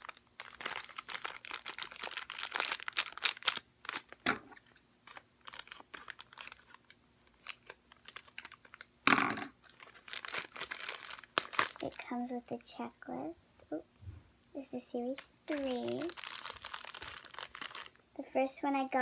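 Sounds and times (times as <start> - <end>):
plastic wrapper crinkling: 0.0 - 12.2, 15.0 - 18.0.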